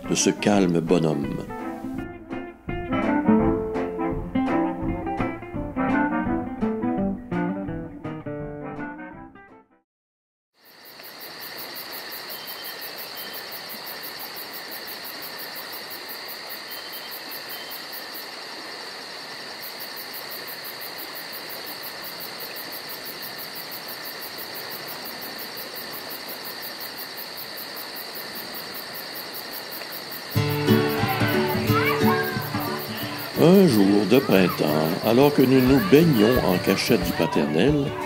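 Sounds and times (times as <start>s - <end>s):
trilling insects: 10.6s - 38.0s.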